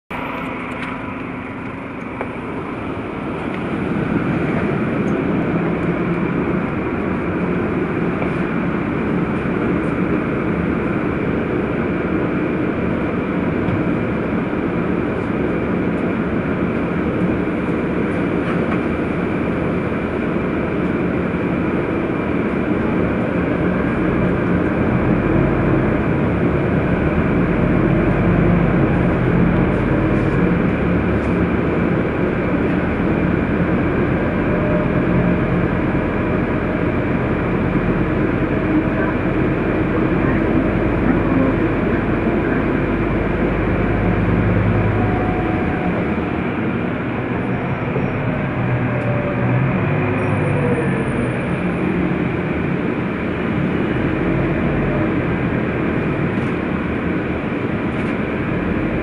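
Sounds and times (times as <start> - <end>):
bus engine and rolling noise: 0.0 - 59.0.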